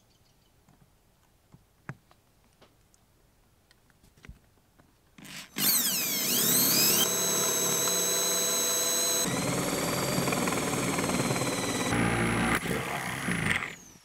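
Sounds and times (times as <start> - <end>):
electric drill whining: 5.2 - 14.0.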